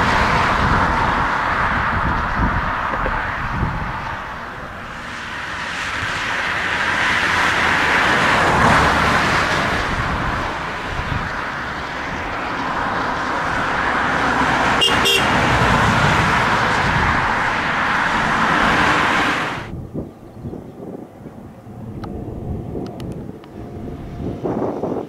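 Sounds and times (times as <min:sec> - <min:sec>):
jet engines of taxiing airliner: 0:00.0 - 0:25.0.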